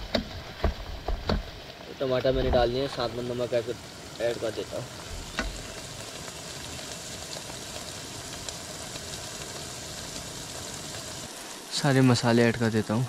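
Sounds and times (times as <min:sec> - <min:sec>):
onions frying in oil: 0:00.0 - 0:13.0.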